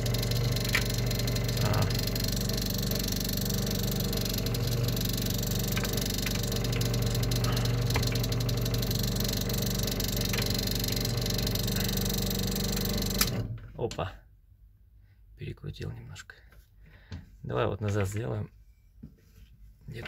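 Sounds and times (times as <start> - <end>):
electric pump motor humming: 0.0 - 13.8.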